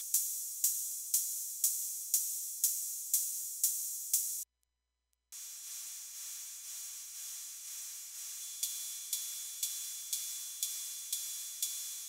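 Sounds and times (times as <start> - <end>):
steady high hiss: 5.4 - 12.0
synthesized cymbal hits: 5.4 - 12.0.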